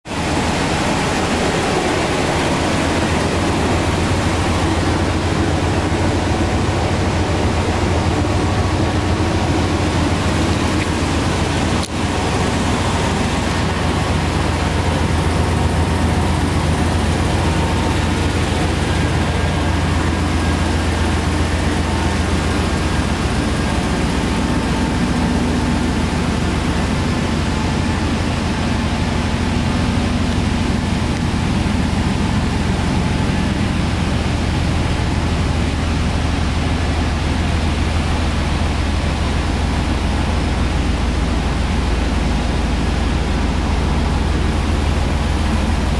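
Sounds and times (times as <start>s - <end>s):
truck engine idling: 0.1s - 45.9s.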